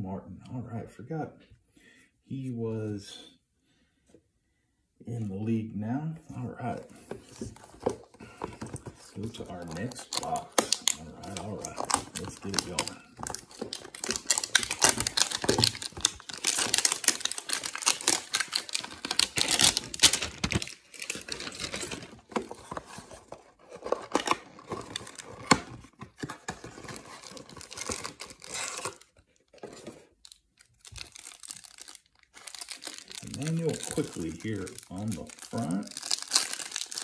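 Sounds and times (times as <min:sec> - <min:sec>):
wrapper crinkling: 0:07.3 - 0:23.1, 0:26.2 - 0:37.0.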